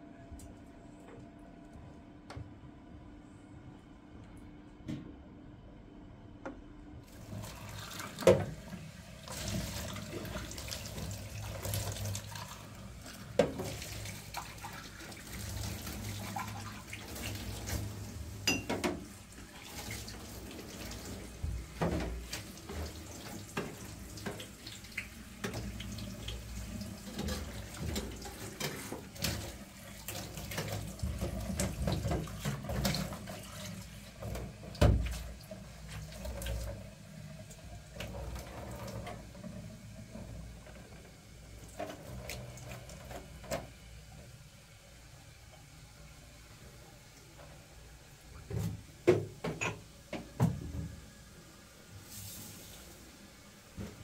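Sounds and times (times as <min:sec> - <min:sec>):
tap water running into sink: 0:07.1 - 0:44.5, 0:45.5 - 0:51.0.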